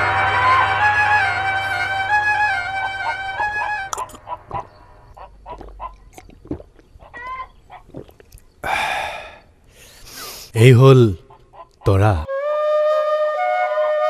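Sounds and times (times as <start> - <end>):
loud noisy burst: 0.0 - 3.3
background music: 0.0 - 4.4.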